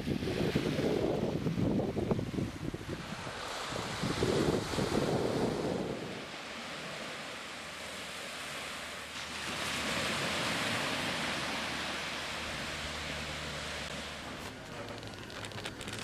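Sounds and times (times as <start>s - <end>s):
wind gusting on microphone: 0.0s - 8.7s
surf washing onto sandy beach: 0.0s - 16.0s.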